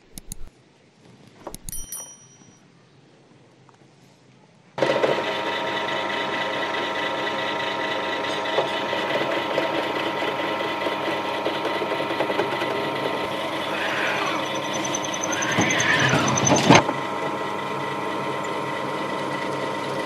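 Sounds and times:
drill press motor humming: 0:05.1 - 0:20.0.

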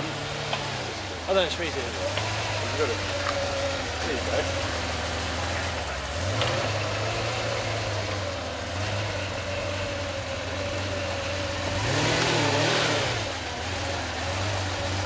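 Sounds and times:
car engine at low revs: 0:00.0 - 0:15.0.

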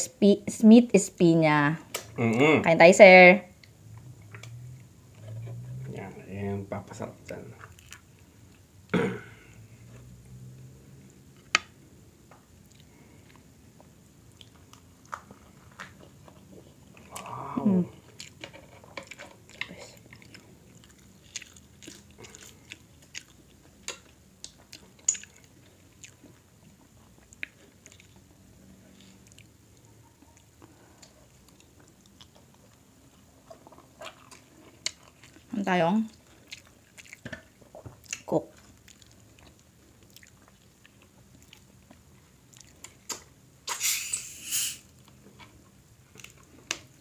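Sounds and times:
person chewing: 0:07.3 - 0:08.7, 0:12.6 - 0:43.8, 0:44.9 - 0:47.0.

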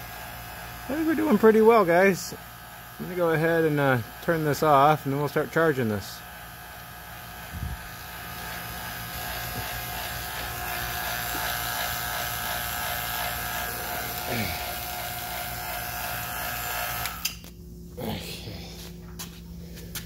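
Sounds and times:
vacuum pump motor humming: 0:00.0 - 0:17.5.

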